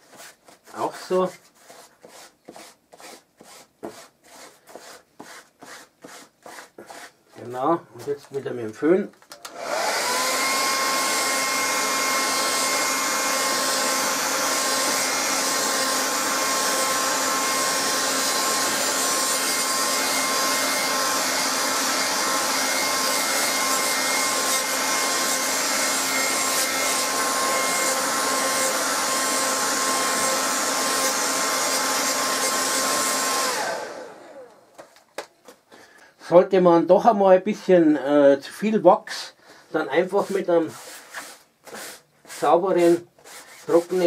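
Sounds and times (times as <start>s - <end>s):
hair dryer running: 9.4s - 34.9s.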